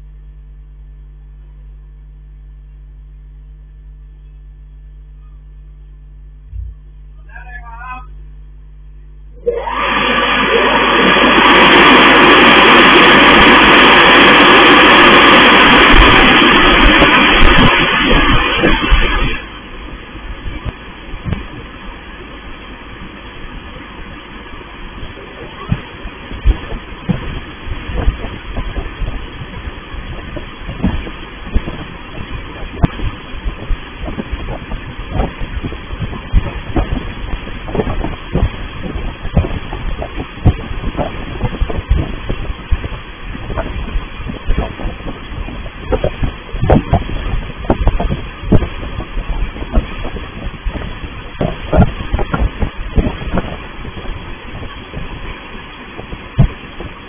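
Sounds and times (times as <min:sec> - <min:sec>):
car wash machine rushing: 0:09.3 - 0:22.2.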